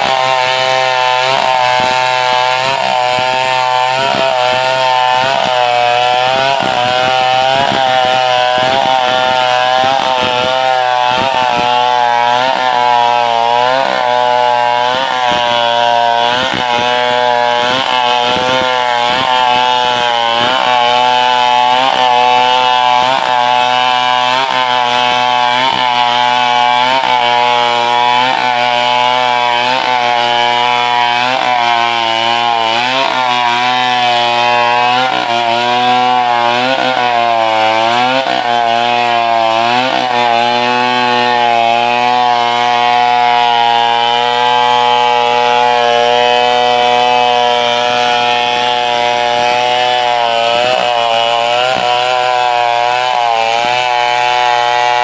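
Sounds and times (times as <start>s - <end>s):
chainsaw cutting log: 0.0s - 55.0s.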